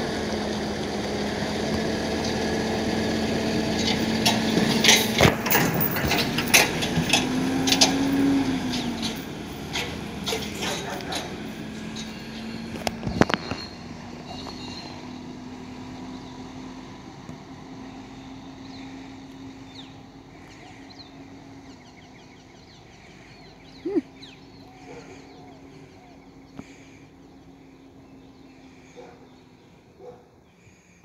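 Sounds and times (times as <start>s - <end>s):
truck engine running: 0.0s - 30.4s
birds chirping: 2.1s - 31.0s
sharp metallic clanks: 3.8s - 8.0s.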